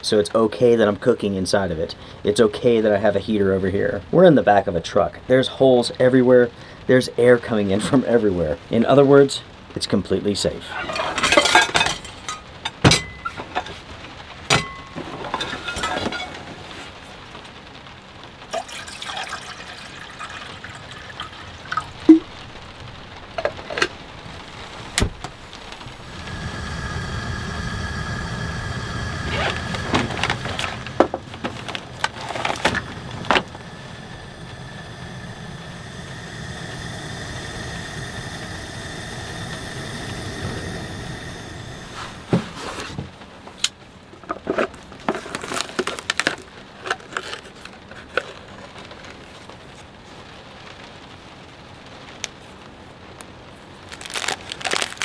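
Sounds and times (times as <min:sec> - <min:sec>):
steady rushing sound: 0:24.0 - 0:42.8.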